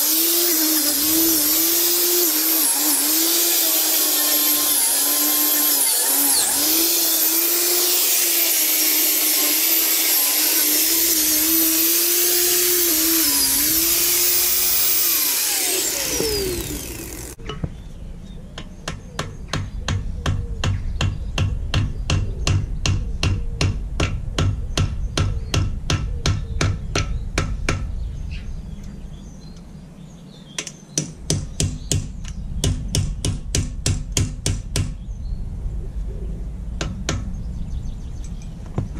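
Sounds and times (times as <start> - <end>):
angle grinder on steel: 0.0 - 17.4
grinder spinning down whine: 0.0 - 17.4.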